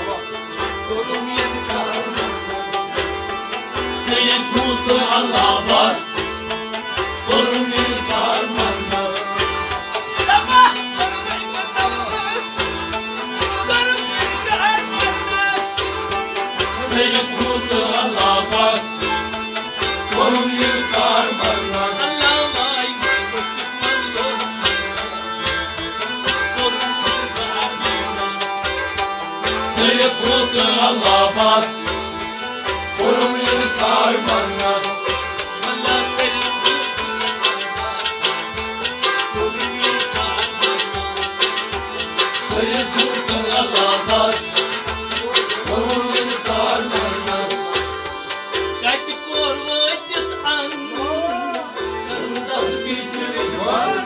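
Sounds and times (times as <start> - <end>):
stringed instruments: 0.0 - 54.0
tabla rhythm: 0.0 - 54.0
person singing: 33.0 - 38.5.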